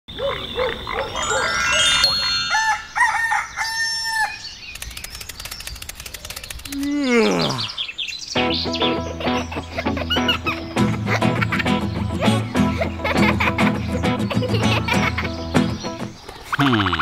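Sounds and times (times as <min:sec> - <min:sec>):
rising chime-like tones: 0:01.1 - 0:04.0
rooster crowing: 0:02.2 - 0:04.4
rapid even ticking: 0:04.7 - 0:07.2.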